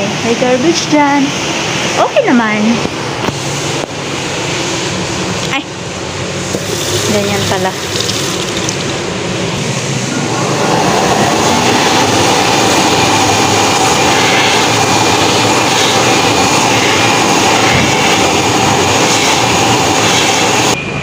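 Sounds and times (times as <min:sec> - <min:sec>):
electric hand dryer blowing: 0:06.4 - 0:20.8.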